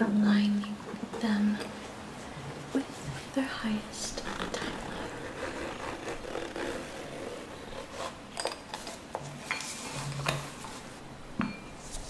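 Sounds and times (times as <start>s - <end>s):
singing bowl clinks and taps: 11.4s - 11.7s
high metallic ring: 11.4s - 11.8s.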